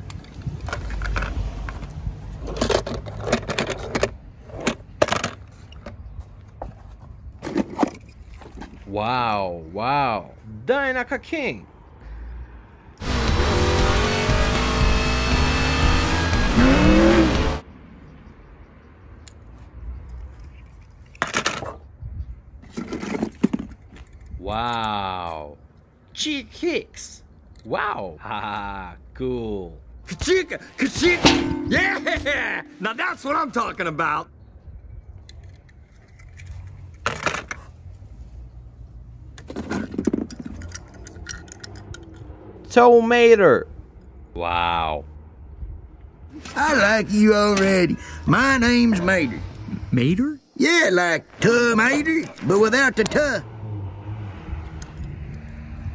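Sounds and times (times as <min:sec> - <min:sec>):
toy cars and balls rattling: 0:00.0 - 0:05.9, 0:22.6 - 0:24.4, 0:35.3 - 0:37.7, 0:39.4 - 0:42.3
race car engines at speed: 0:12.2 - 0:17.7, 0:52.2 - 0:55.9.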